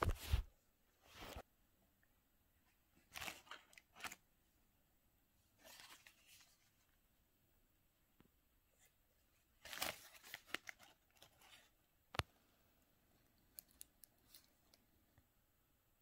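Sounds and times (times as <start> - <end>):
cardboard box and paper rustling: 9.6 - 11.8.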